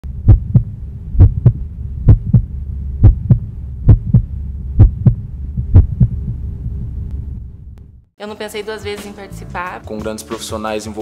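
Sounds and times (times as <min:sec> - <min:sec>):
steady low hum: 0:00.0 - 0:08.1
heartbeat thumps: 0:00.1 - 0:08.0.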